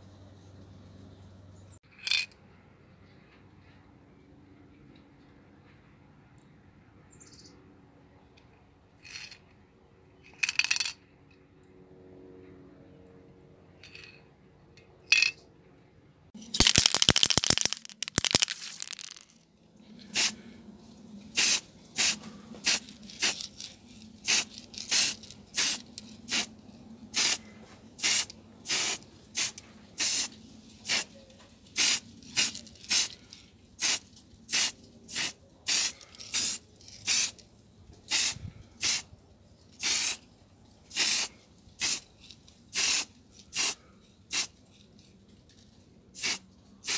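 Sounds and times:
spray can mixing ball rattling: 16.4 - 19.4, 21.4 - 26.5, 31.7 - 33.2, 42.7 - 44.5, 46.2 - 46.9
short spray paint hisses: 20.1 - 20.4, 21.4 - 23.4, 24.2 - 26.5, 27.2 - 27.4, 28.0 - 31.1, 31.8 - 33.2, 33.8 - 37.4, 38.1 - 39.0, 39.8 - 40.2, 40.9 - 42.0, 42.7 - 44.5, 46.2 - 46.9.

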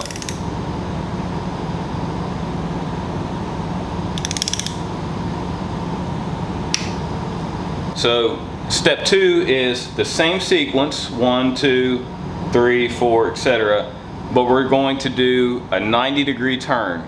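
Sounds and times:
torque wrench ratchet clicking: 0.0 - 0.4, 4.2 - 4.8
steady low hum: 0.0 - 17.0.

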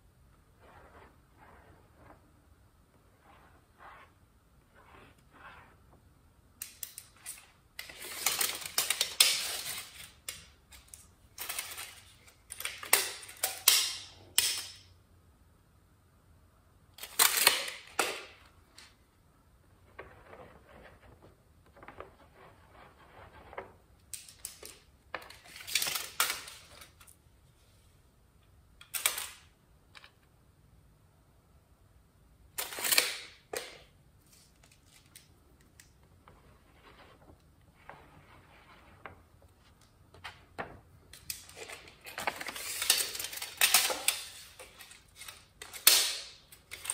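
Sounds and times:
tape measure rattling and clicking: 6.6 - 14.8, 41.1 - 46.9.

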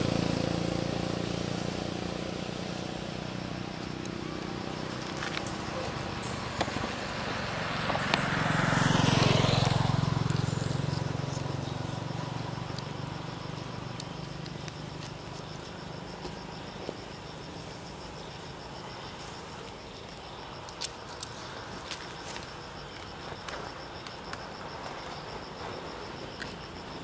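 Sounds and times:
vehicle passing: 0.0 - 19.8.

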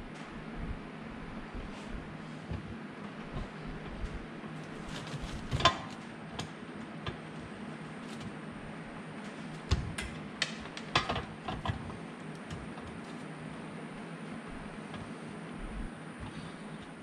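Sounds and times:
steady low hum: 0.0 - 17.0
tool and wire clicks and knocks: 2.5 - 7.4, 9.2 - 13.2.

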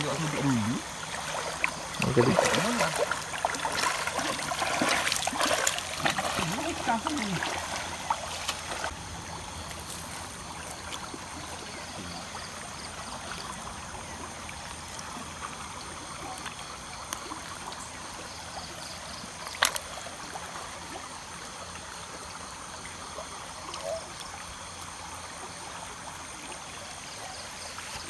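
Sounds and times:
shallow river flowing: 0.0 - 28.0.

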